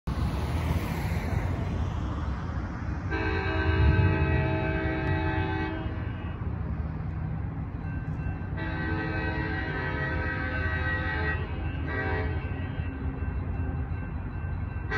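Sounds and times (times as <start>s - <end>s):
train low rumble: 0.1s - 14.9s
multi-note train horn blast: 3.1s - 6.6s, 8.6s - 13.0s.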